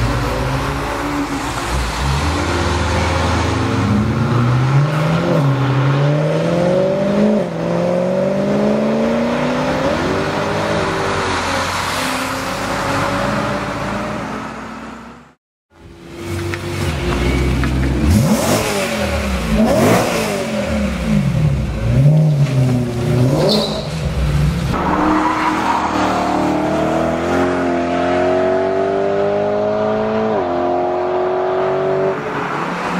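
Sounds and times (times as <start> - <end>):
car engine revving: 16.2 - 32.2.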